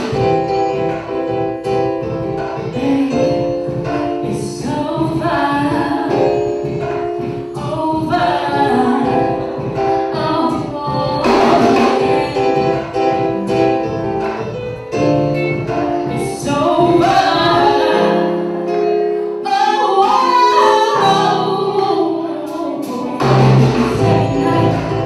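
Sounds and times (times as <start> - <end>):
keyboards: 0.0 - 25.0
woman singing: 2.6 - 13.3, 16.0 - 25.0
bass guitar: 23.1 - 25.0.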